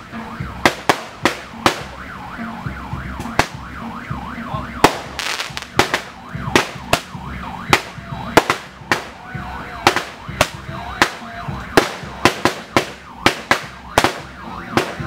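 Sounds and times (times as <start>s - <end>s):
yelp siren wailing: 0.0s - 15.0s
sharp cracks: 4.8s - 7.1s.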